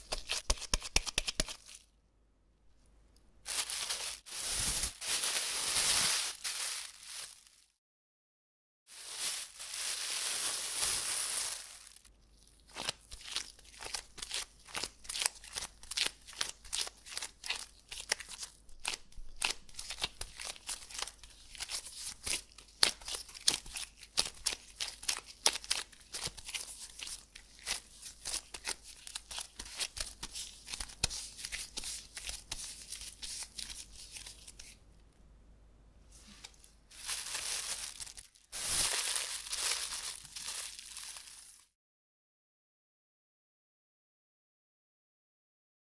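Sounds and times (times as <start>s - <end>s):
hands kneading dough: 0.0s - 1.8s, 9.0s - 34.9s
plastic bag crinkling: 3.5s - 7.7s, 8.9s - 17.3s, 36.4s - 41.7s.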